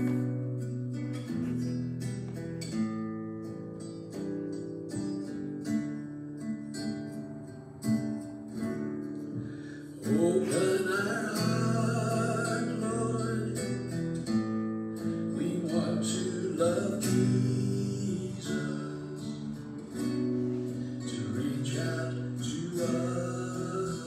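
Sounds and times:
acoustic guitar: 0:00.0 - 0:24.0
person singing: 0:10.0 - 0:13.9, 0:15.2 - 0:24.0.

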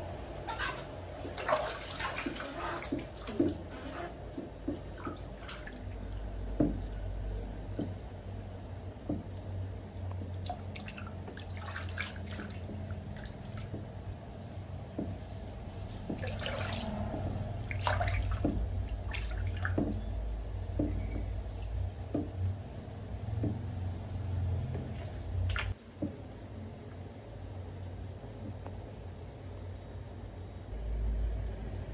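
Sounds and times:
low steady hum: 0:00.0 - 0:31.9
small splashes and drips: 0:00.1 - 0:31.9
shower spraying into water: 0:00.4 - 0:08.4, 0:15.2 - 0:26.1.

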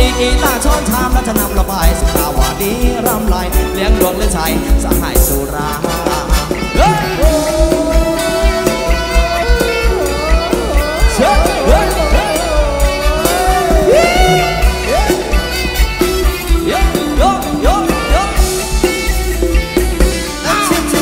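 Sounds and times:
person singing: 0:00.0 - 0:19.2, 0:20.2 - 0:21.0
heavy bass beat: 0:00.0 - 0:21.0
live band dance music: 0:00.0 - 0:21.0.

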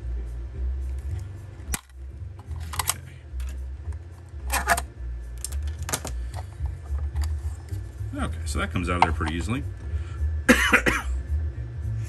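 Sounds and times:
steady low rumble: 0:00.0 - 0:12.0
plastic clicks and wire rattles: 0:01.8 - 0:03.6.

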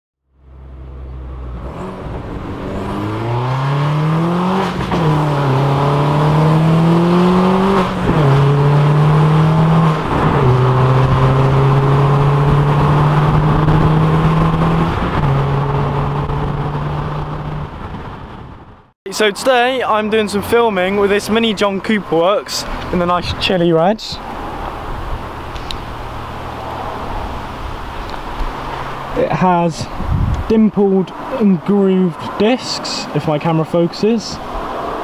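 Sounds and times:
car engine accelerating: 0:00.3 - 0:18.9, 0:24.2 - 0:29.3.

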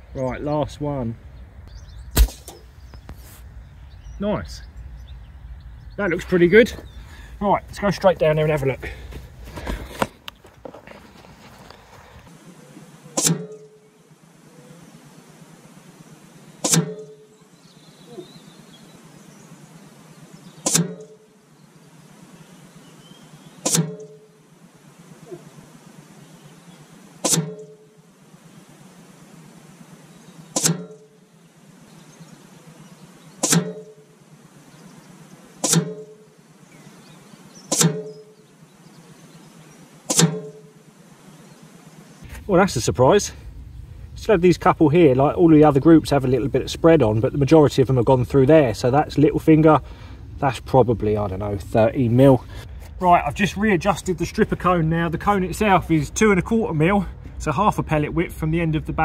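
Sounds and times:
pellets smacking paper target: 0:02.2 - 0:02.6, 0:20.6 - 0:21.1, 0:23.6 - 0:24.0, 0:27.2 - 0:27.6, 0:30.5 - 0:30.9, 0:33.4 - 0:33.9, 0:35.6 - 0:36.2, 0:37.7 - 0:38.1, 0:40.1 - 0:40.6.

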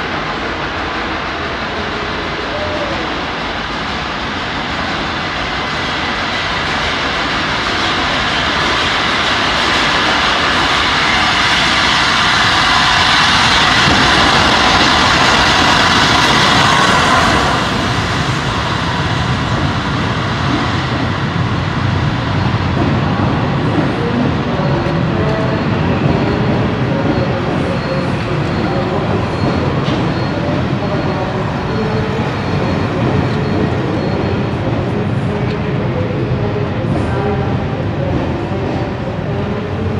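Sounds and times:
steam locomotive coasting: 0:04.9 - 0:39.9.

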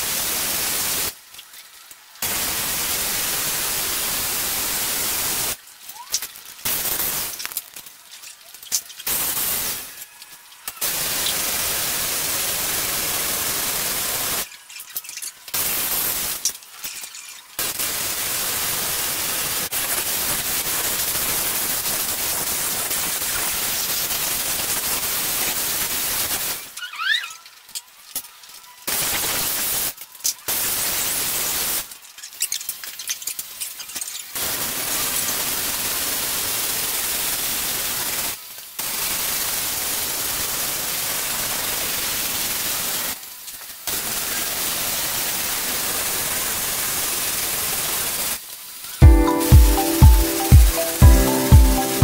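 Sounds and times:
welding arc crackling and hissing: 0:00.0 - 0:26.8, 0:27.4 - 0:52.0.

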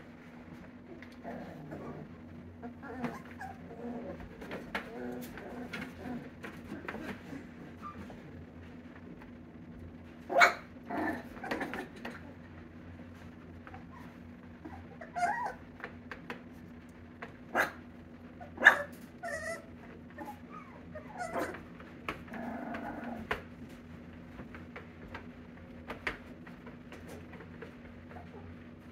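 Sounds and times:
puppy growling: 0:00.5 - 0:08.4, 0:10.3 - 0:12.5, 0:13.6 - 0:15.7, 0:18.4 - 0:23.7
puppies yipping and whimpering: 0:02.6 - 0:04.5, 0:13.7 - 0:15.6, 0:18.4 - 0:21.6
clicks from paws and toys: 0:21.2 - 0:28.3.

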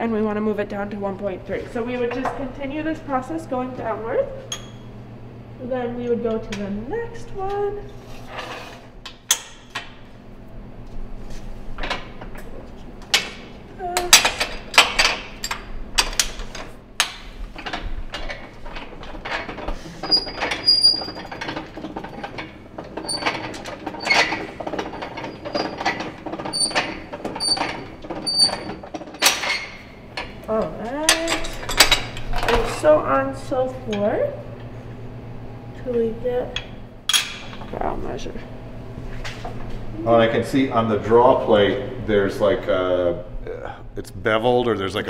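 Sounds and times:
wire squeaking: 0:19.2 - 0:29.9.

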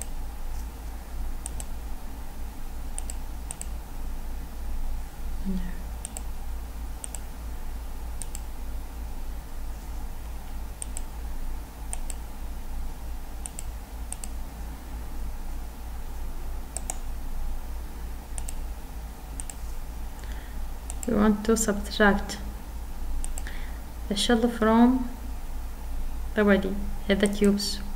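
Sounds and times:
computer mouse clicking: 0:00.0 - 0:00.7, 0:01.4 - 0:01.8, 0:02.9 - 0:03.8, 0:06.0 - 0:06.4, 0:07.0 - 0:07.3, 0:08.2 - 0:08.5, 0:10.8 - 0:11.2, 0:11.9 - 0:12.3, 0:13.4 - 0:14.4, 0:16.7 - 0:17.1, 0:18.3 - 0:18.7, 0:19.4 - 0:19.7, 0:20.9 - 0:21.2, 0:23.2 - 0:23.5.

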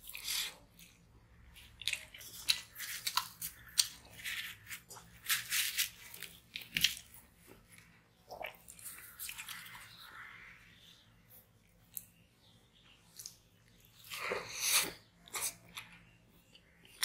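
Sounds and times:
chewing flaky flatbread: 0:00.0 - 0:10.2, 0:11.3 - 0:17.0
bread tearing by hand: 0:01.9 - 0:07.1.

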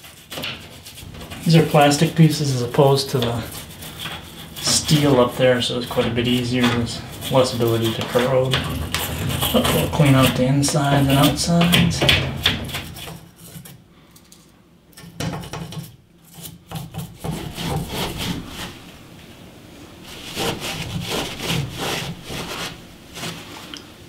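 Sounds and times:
cloth rubbing metal valve: 0:00.0 - 0:13.7
brush scrubbing plastic hose: 0:00.0 - 0:13.8, 0:16.2 - 0:19.0, 0:20.0 - 0:23.8.

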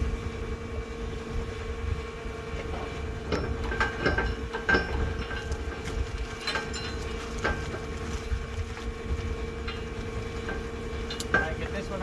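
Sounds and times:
machinery hum: 0:00.0 - 0:12.0
wind rumble on microphone: 0:00.0 - 0:12.0
metallic clanks and taps: 0:02.6 - 0:07.9, 0:09.6 - 0:11.9.

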